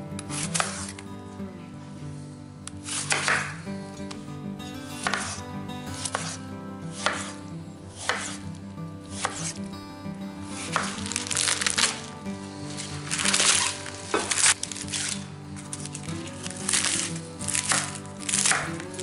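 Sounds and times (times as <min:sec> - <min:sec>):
background music with held tones: 0:00.0 - 0:19.0
knife cutting through lettuce: 0:00.3 - 0:01.0, 0:02.7 - 0:03.6, 0:05.0 - 0:08.5, 0:09.1 - 0:09.6, 0:10.6 - 0:19.0
knife slicing on wooden board: 0:02.8 - 0:03.5, 0:05.0 - 0:05.4, 0:06.0 - 0:07.4, 0:08.0 - 0:08.4, 0:09.2 - 0:09.6, 0:10.6 - 0:12.0, 0:16.4 - 0:18.8.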